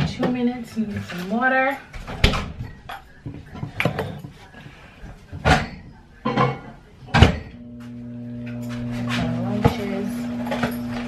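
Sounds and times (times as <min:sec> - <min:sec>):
clunks of doors and dishware: 0:00.0 - 0:04.5, 0:05.3 - 0:07.7
microwave oven humming: 0:07.6 - 0:11.0.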